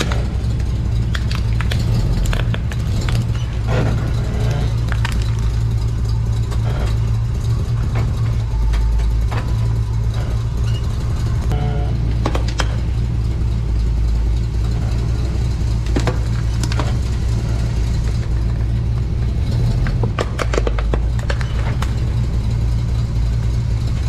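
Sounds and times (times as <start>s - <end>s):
truck engine running at low revs: 0.0s - 24.0s
plastic toy cracking and crunching: 1.1s - 3.5s, 4.8s - 5.7s.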